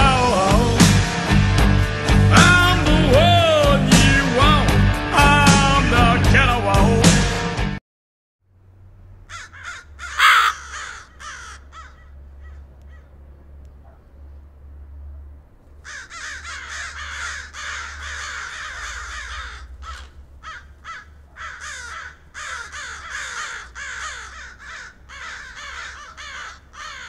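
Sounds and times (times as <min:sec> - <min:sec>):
crows cawing: 0:09.3 - 0:13.2, 0:15.8 - 0:27.0.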